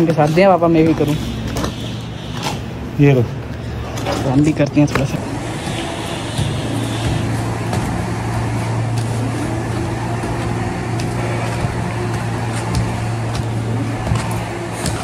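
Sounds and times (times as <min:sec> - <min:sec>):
motor humming: 0:03.4 - 0:15.0.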